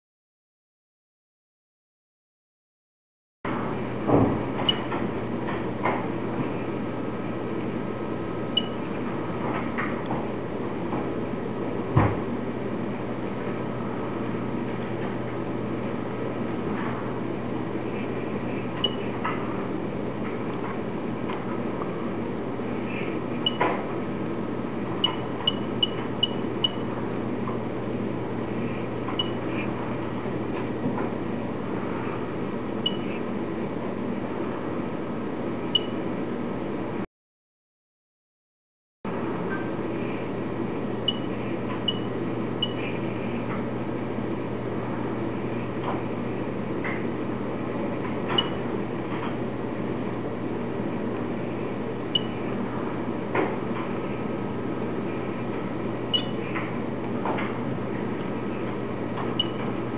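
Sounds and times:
low background hum: 3.5 - 37.1, 39.1 - 59.9
short high-pitched beeps: 56.2 - 56.4.

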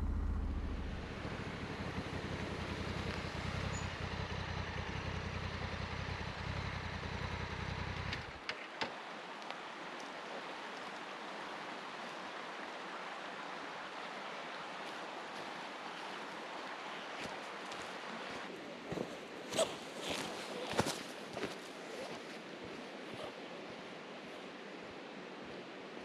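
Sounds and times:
motorcycle engine idling: 0.0 - 8.4
creek running over rocks: 1.2 - 26.0.

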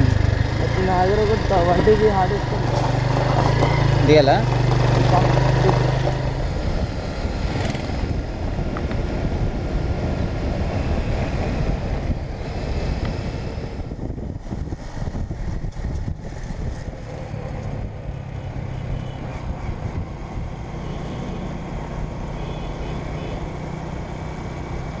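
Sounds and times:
motorcycle engine running: 0.0 - 11.8
wind buffeting microphone: 4.6 - 21.8.

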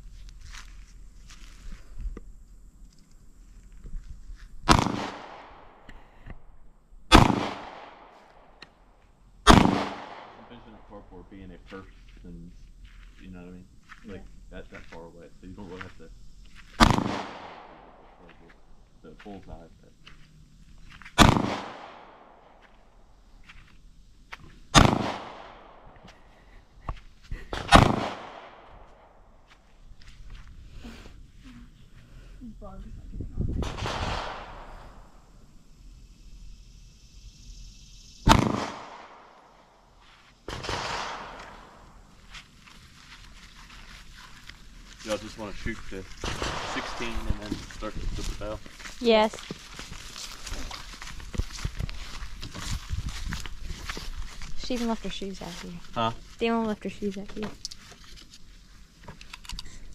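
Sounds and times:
pistol shots: 4.7 - 5.6, 7.1 - 8.1, 9.5 - 10.5, 16.8 - 17.9, 21.2 - 22.2, 24.7 - 25.8, 27.6 - 28.6, 33.6 - 34.8, 38.2 - 39.4, 40.5 - 41.8, 46.2 - 47.2
handgun shots: 7.1 - 7.9, 9.5 - 10.3, 21.2 - 22.0, 38.3 - 39.1, 40.5 - 41.6.

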